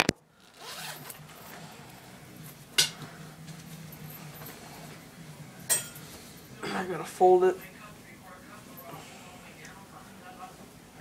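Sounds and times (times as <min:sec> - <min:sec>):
fabric rustling: 0:00.0 - 0:01.9.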